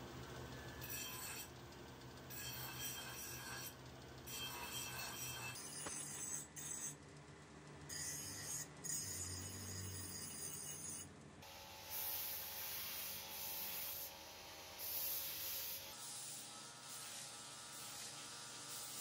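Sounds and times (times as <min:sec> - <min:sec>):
bench grinder grinding metal: 0:00.7 - 0:01.5, 0:02.2 - 0:07.0, 0:07.9 - 0:19.0.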